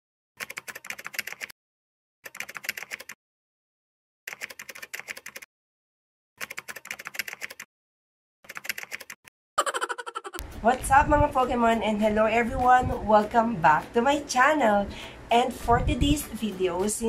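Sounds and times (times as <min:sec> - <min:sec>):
keyboard typing clicks: 0:00.4 - 0:01.5, 0:02.3 - 0:03.2, 0:04.3 - 0:05.5, 0:06.4 - 0:07.7, 0:08.5 - 0:09.2.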